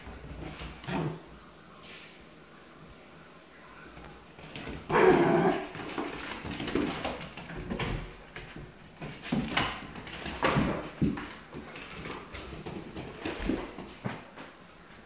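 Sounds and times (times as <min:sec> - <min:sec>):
dog barking and whining: 0:04.9 - 0:05.7.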